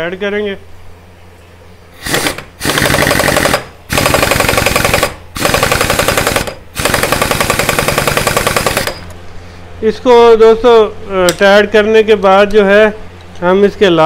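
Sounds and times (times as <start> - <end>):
air impact wrench hammering: 2.0 - 9.1.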